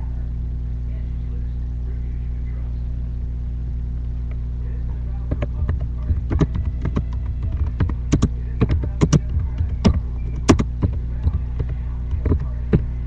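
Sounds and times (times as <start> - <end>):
low electrical hum: 0.0 - 13.0
keyboard keys clicking: 5.3 - 12.9.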